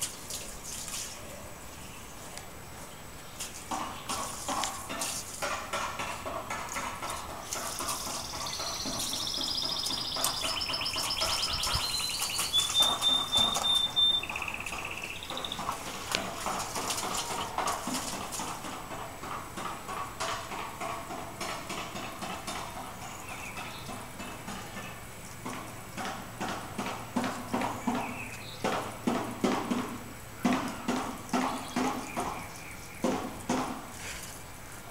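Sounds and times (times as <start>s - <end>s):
songbird trilling and whistling: 8.0s - 15.8s.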